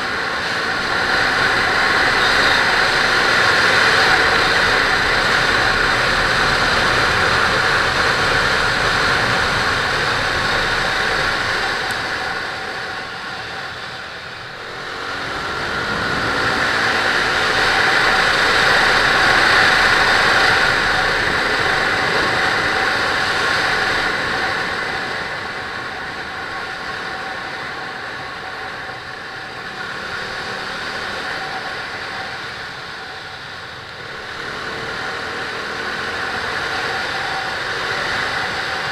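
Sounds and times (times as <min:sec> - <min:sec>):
motorcycle engine running: 0:00.0 - 0:38.9
wind rushing over camera: 0:02.7 - 0:26.0.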